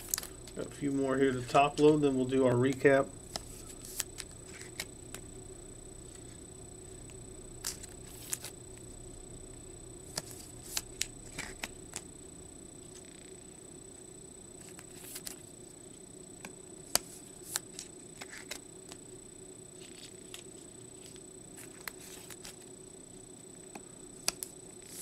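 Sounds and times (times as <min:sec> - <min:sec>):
cards clicking and scraping: 0:00.0 - 0:00.7, 0:02.6 - 0:05.2, 0:07.6 - 0:08.5, 0:10.1 - 0:12.1, 0:14.6 - 0:15.4, 0:16.9 - 0:19.0, 0:19.8 - 0:22.6, 0:24.2 - 0:25.0
faint hum: 0:00.0 - 0:25.0.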